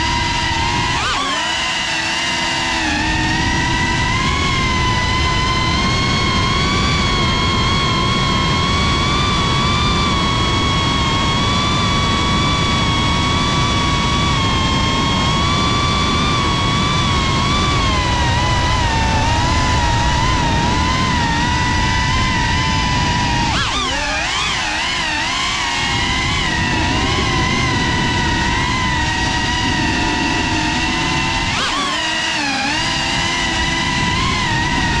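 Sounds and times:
drone propellers whining: 0:00.0 - 0:35.0
rough rushing noise: 0:17.8 - 0:35.0.

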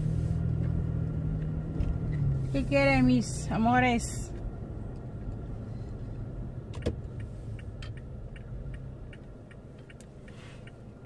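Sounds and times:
moving vehicle rumble: 0:00.0 - 0:11.0
faint light ticks: 0:06.7 - 0:11.0.

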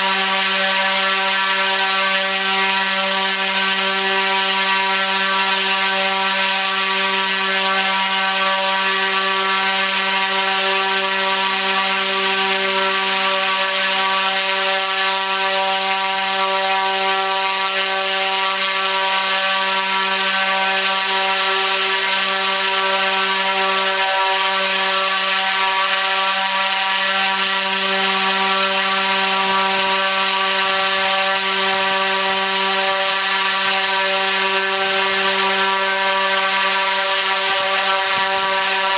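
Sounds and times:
propeller air rush: 0:18.0 - 0:38.9
electric motor humming: 0:27.4 - 0:38.9.

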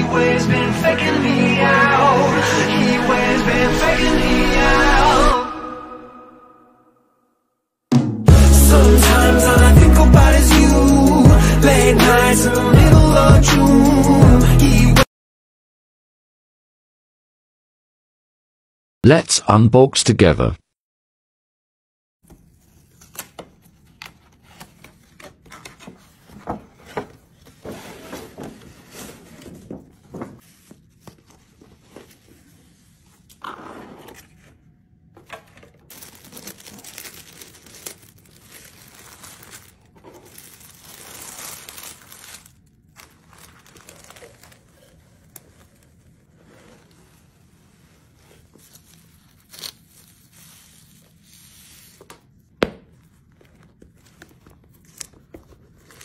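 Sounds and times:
paper crinkling and tearing: 0:22.4 - 0:34.5, 0:35.3 - 0:52.4, 0:53.0 - 0:56.0.

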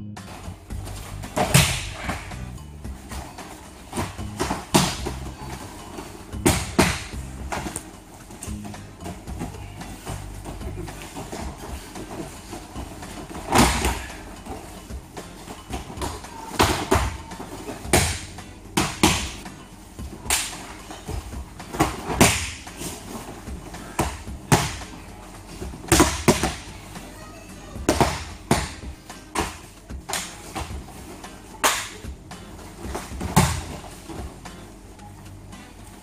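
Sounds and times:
bodies thudding onto a foam mat: 0:00.7 - 0:02.3, 0:02.9 - 0:07.8, 0:08.5 - 0:14.2, 0:20.1 - 0:25.0, 0:25.6 - 0:26.7, 0:32.7 - 0:34.4
cloth snapping: 0:20.2 - 0:20.6, 0:31.6 - 0:32.0.

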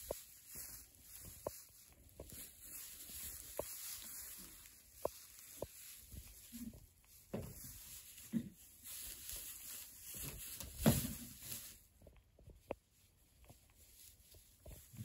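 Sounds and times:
goats fighting thuds and knocks: 0:10.2 - 0:11.5.

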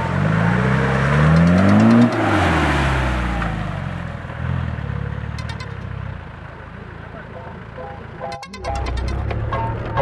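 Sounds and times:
engine revving hard in mud: 0:00.0 - 0:04.0.

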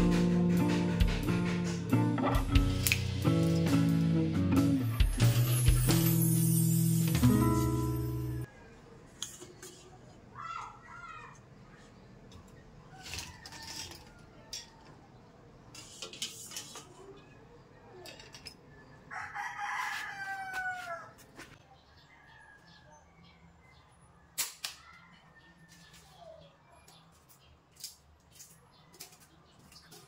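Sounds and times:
rooster crowing: 0:19.1 - 0:21.3.

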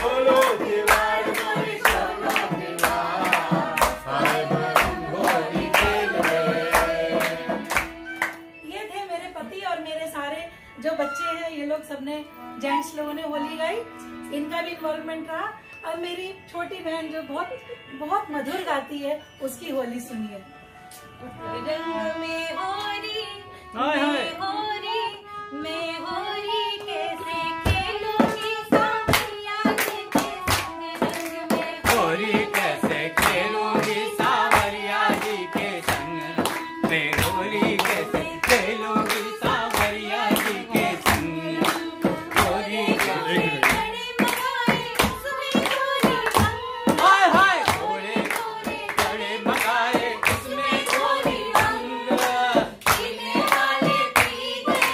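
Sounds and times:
group singing folk song: 0:00.0 - 0:08.4, 0:26.8 - 0:54.9
hand clapping: 0:00.0 - 0:08.5, 0:27.6 - 0:54.9
harmonium: 0:00.0 - 0:54.9.

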